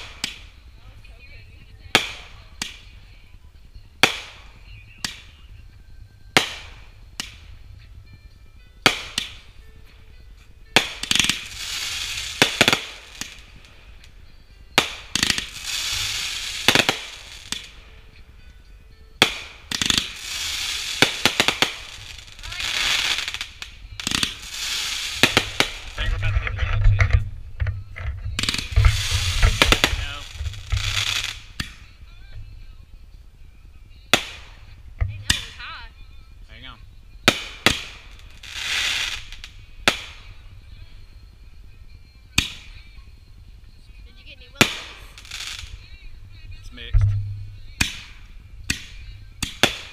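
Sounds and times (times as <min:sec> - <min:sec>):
firework bangs: 0:00.0 - 0:01.0, 0:01.7 - 0:03.0, 0:04.0 - 0:05.5, 0:06.3 - 0:07.7, 0:08.8 - 0:09.6, 0:10.7 - 0:17.8, 0:19.2 - 0:32.0, 0:34.1 - 0:35.9, 0:37.2 - 0:40.5, 0:44.5 - 0:45.9, 0:46.6 - 0:49.9
fireworks crackling: 0:00.0 - 0:49.9.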